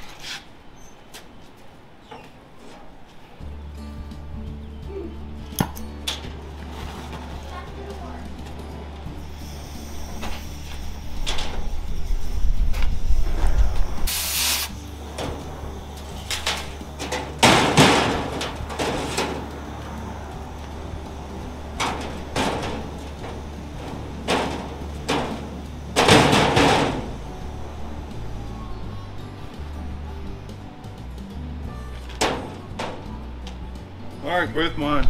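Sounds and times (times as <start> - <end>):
cutting torch hissing: 9.2 - 16.9
wind rumbling on microphone: 10.6 - 14.1.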